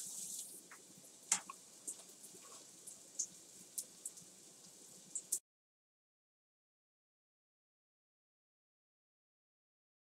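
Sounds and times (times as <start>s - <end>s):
oil popping and crackling: 0.0s - 5.4s
tortilla strips sizzling in oil: 0.0s - 5.4s.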